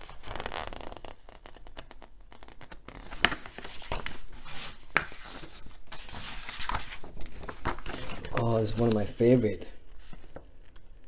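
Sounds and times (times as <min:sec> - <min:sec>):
paper rustling and sliding: 0:02.5 - 0:10.5.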